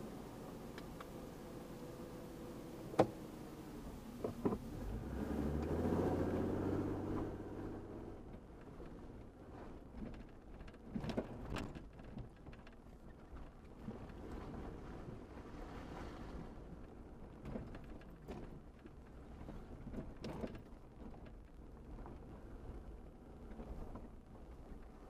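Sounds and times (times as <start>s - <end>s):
off-road vehicle engine: 0.0s - 25.0s
knocks and rattles over rocks: 8.3s - 14.7s, 17.2s - 22.3s.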